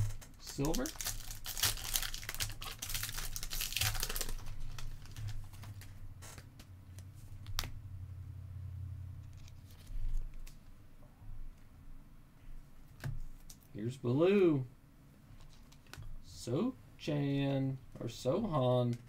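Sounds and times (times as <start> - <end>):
foil wrapper tearing and crinkling: 0.4 - 5.9
steady low hum: 2.5 - 19.0.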